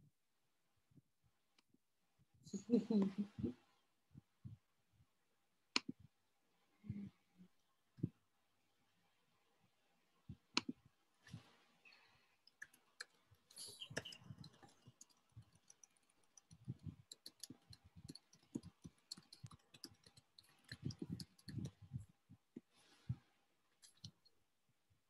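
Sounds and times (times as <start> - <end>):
faint clicks and taps: 12.4 - 22.8.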